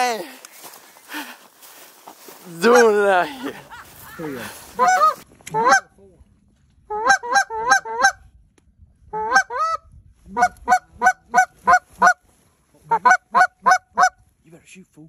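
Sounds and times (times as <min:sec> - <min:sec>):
goose honking: 0:02.6 - 0:03.3, 0:04.0 - 0:05.9, 0:06.9 - 0:08.2, 0:09.1 - 0:09.8, 0:10.4 - 0:12.2, 0:12.9 - 0:14.2.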